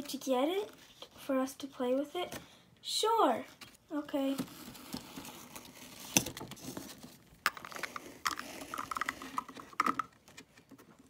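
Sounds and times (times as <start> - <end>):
toy handling noise: 3.6 - 11.0
plastic toys tapping and clicking: 7.4 - 11.0.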